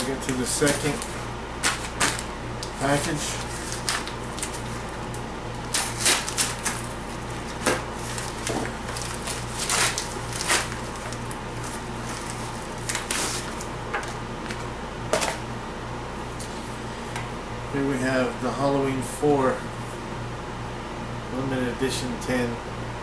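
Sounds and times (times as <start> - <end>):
paper envelope crinkling and tearing: 0.0 - 14.7
steady low hum: 0.0 - 23.0.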